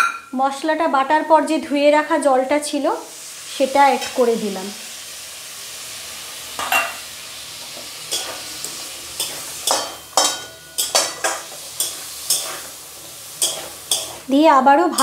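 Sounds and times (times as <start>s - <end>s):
food sizzling while frying: 0.1s - 15.0s
metal spatula scraping pan: 8.0s - 14.3s.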